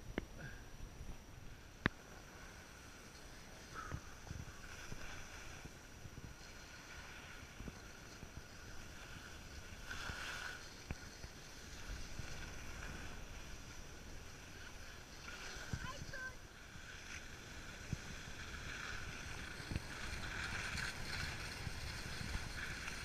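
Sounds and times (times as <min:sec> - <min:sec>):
wind rumbling on microphone: 0:00.0 - 0:23.0
skis scraping on snow: 0:06.4 - 0:16.2, 0:16.9 - 0:23.0.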